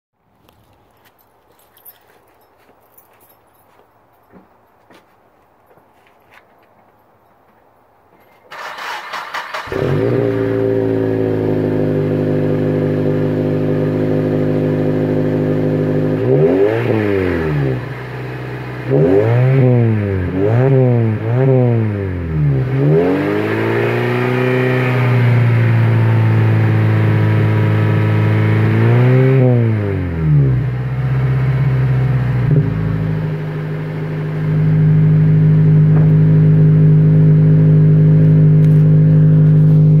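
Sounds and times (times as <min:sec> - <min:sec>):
car engine idling and revving: 0:08.5 - 0:40.0.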